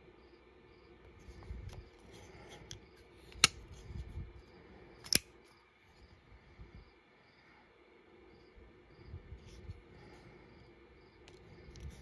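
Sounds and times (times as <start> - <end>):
knife handling clicks: 2.6 - 3.9, 5.0 - 5.3
knife blade snapping shut: 5.0 - 5.3.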